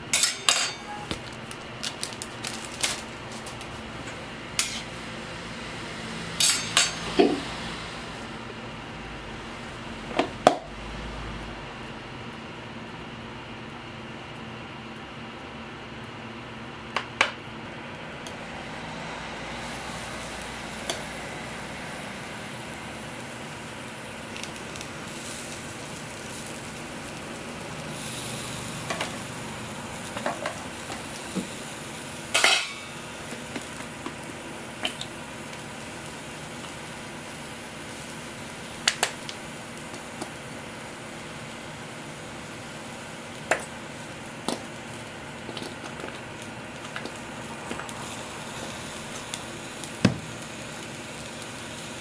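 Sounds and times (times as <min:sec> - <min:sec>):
tongs clacking on griddle: 0:00.1 - 0:01.0, 0:04.6 - 0:04.9, 0:06.4 - 0:07.1, 0:32.3 - 0:33.0.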